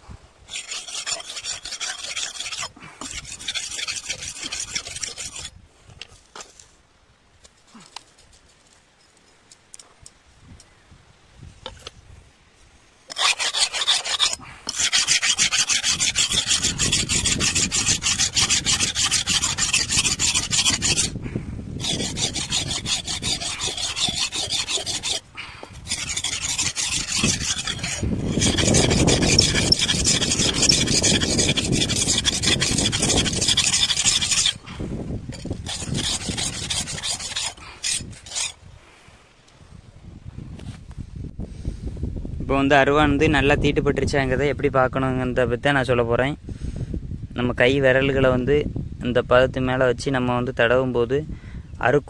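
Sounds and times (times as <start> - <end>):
blade scraped on sharpening surface: 0.5 - 5.5, 13.1 - 21.2, 21.8 - 34.6, 35.3 - 38.6.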